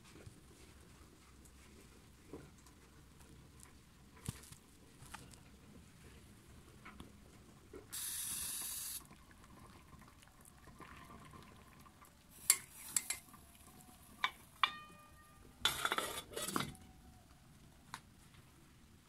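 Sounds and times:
short hiss: 7.9 - 9.0
metal pot lid clinking: 14.2 - 16.8
rattling scrape: 15.6 - 16.7.

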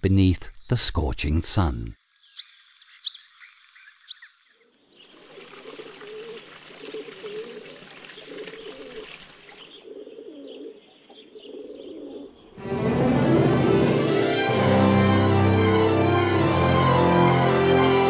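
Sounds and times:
small birds chirping: 0.1 - 12.6
pigeons cooing: 5.1 - 12.6
music: 12.6 - 18.0.

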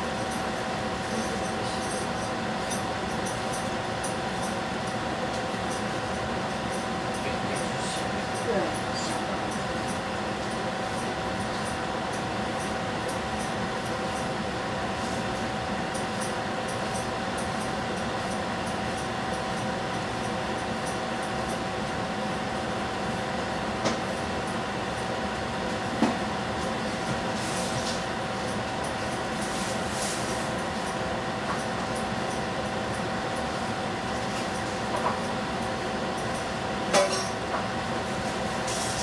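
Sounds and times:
constant hum: 0.0 - 39.0.

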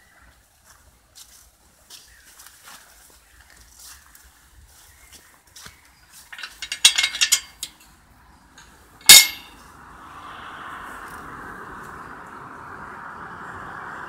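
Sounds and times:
sharp clicks and clinks: 6.3 - 7.9, 9.0 - 9.6
car passing: 8.2 - 14.0.

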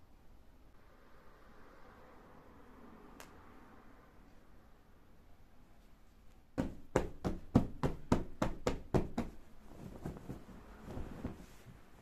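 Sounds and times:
fabric handling: 5.8 - 12.0
hand patting a pillow: 6.6 - 11.8.

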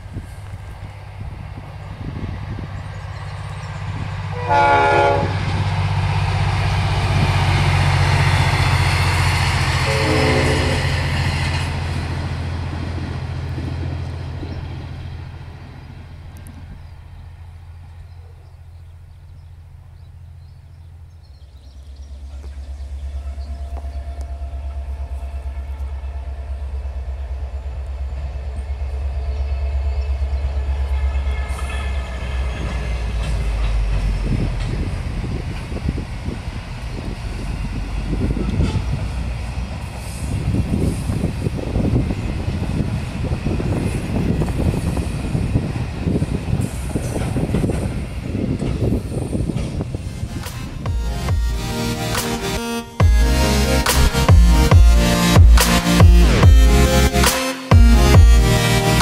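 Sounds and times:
diesel locomotive engine throb: 0.0 - 59.0
diesel train engine drone: 0.0 - 59.0
train horn blasts: 4.3 - 5.7, 8.9 - 11.7, 23.0 - 33.9, 37.9 - 39.2, 50.6 - 59.0.

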